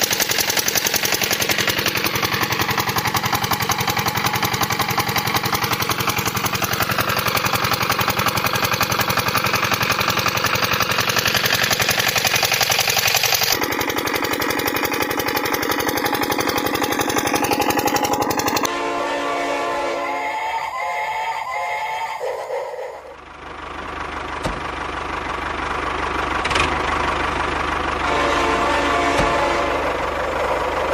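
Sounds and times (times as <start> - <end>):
miniature engine knocking: 0.0 - 18.7
toy train whistle tones: 18.6 - 23.2, 28.0 - 30.0.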